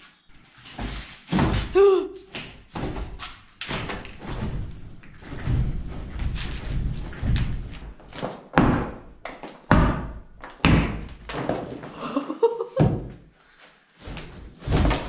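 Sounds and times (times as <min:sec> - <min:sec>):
sledgehammer striking brick wall: 0:02.7 - 0:11.8.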